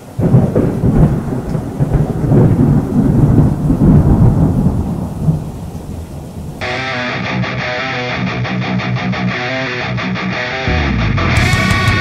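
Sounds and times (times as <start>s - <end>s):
rain: 0.0s - 7.6s
thunder rumbling: 0.0s - 7.6s.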